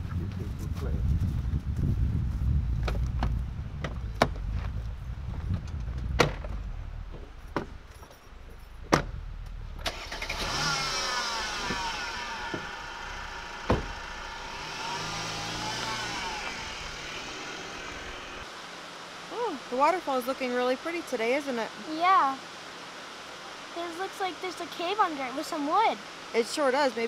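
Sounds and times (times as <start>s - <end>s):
car engine pulling away: 5.4s - 18.4s
car doors shutting: 5.5s - 7.9s, 8.8s - 18.4s.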